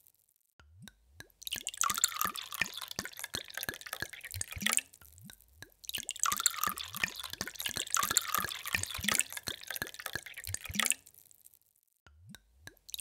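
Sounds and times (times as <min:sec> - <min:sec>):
water pouring into a glass: 0:01.4 - 0:11.2.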